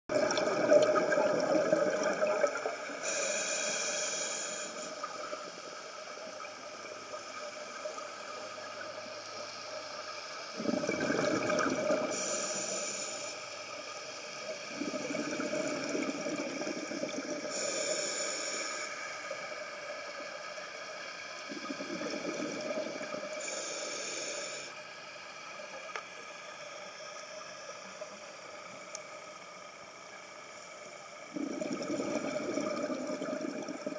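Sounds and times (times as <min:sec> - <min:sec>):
gurgling exhaled bubbles: 0:00.1 - 0:02.9, 0:10.5 - 0:12.4, 0:14.7 - 0:17.7, 0:21.5 - 0:23.5, 0:31.3 - 0:33.9
regulator hissing inhalations: 0:02.8 - 0:06.2, 0:12.1 - 0:15.4, 0:17.4 - 0:20.1, 0:23.0 - 0:25.0.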